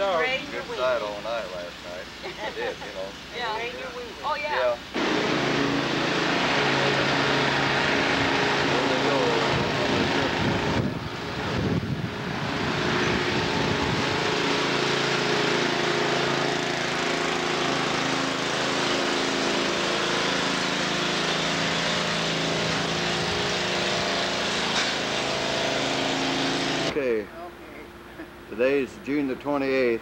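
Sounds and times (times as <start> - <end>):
constant hiss: 0.0 - 30.0
engine running steadily: 0.0 - 30.0.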